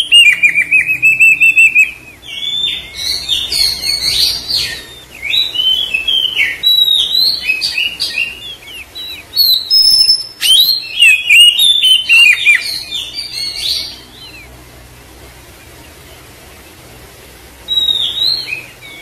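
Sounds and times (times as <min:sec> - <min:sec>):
magpie-robin whistling song: 0:00.0 - 0:14.5, 0:17.6 - 0:19.0.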